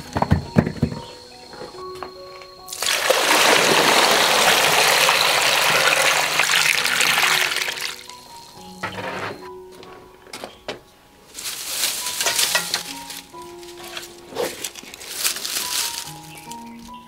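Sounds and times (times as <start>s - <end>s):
water splashing onto vegetables: 2.7s - 8.0s.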